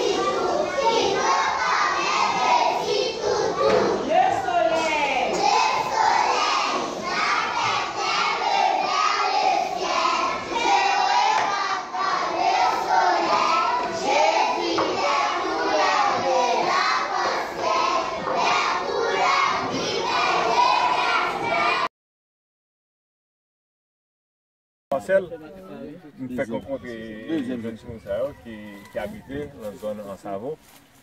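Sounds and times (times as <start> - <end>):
children chanting: 0.0 - 21.9
young children talking and calling out: 0.0 - 21.9.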